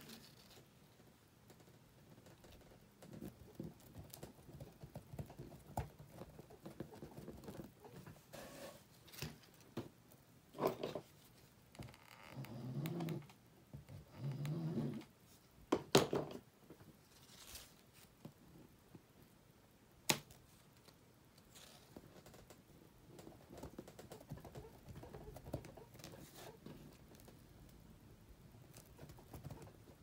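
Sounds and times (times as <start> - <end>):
ribbon rustling: 17.0 - 18.3.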